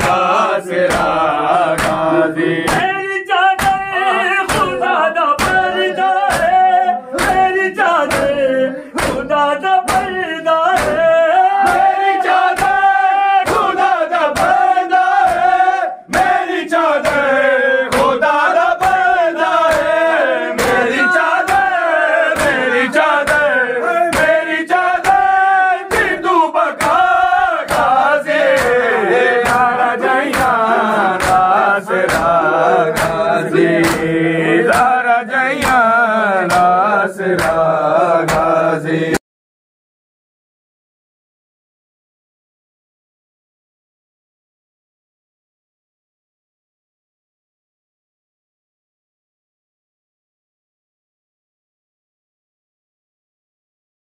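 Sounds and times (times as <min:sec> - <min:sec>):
crowd chanting: 0:00.0 - 0:39.2
men chanting a lament: 0:00.0 - 0:39.2
rhythmic sharp slaps: 0:00.0 - 0:39.2.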